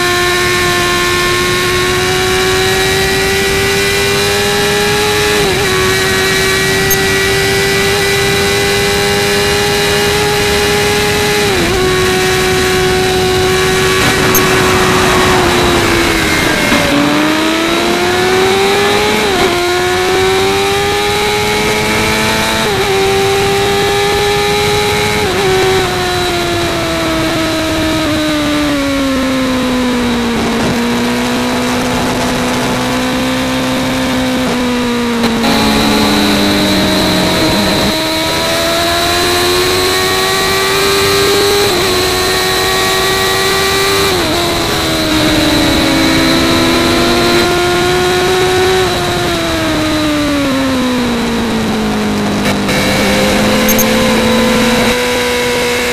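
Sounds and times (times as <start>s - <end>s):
motorcycle engine revving: 0.0s - 55.9s
wind noise: 0.0s - 55.9s.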